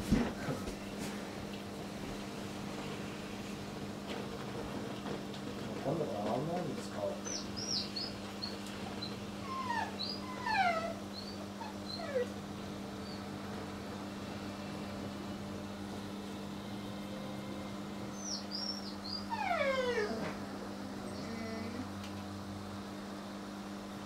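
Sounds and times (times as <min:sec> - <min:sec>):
steady low hum: 0:00.0 - 0:24.0
high whimpers: 0:09.4 - 0:12.4, 0:18.2 - 0:22.0.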